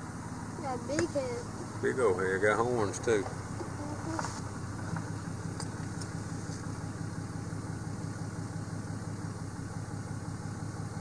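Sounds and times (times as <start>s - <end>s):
pickup engine idling: 0.0s - 11.0s.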